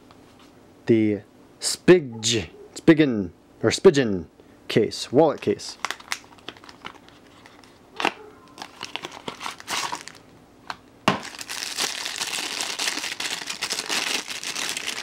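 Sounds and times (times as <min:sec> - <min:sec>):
plastic bag crinkling: 0:05.3 - 0:10.3, 0:11.1 - 0:15.0.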